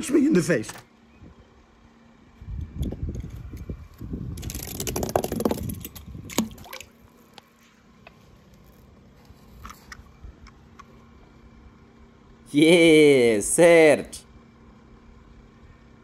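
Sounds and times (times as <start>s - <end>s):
water sloshing and splashing: 6.3s - 7.2s.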